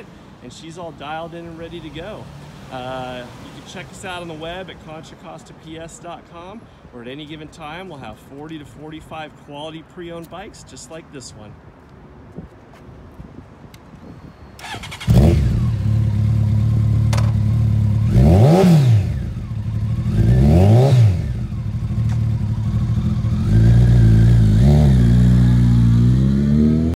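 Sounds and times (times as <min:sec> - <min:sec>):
motorcycle engine idling and revving: 0:14.6 - 0:27.0.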